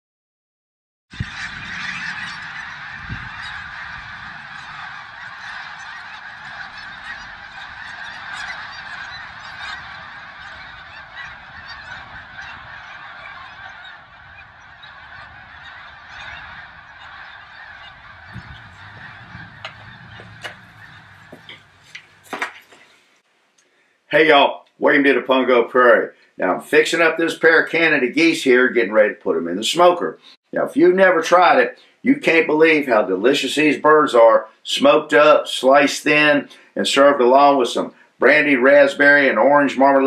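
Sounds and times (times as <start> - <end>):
geese honking in flight: 1.1 - 22.8.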